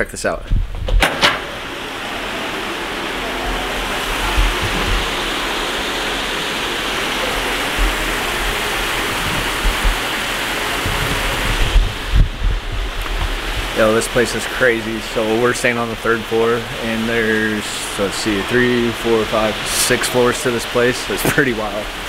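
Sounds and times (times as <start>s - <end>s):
low thumps: 0.5s - 6.3s, 7.2s - 13.8s
waterfall rushing: 1.5s - 22.0s.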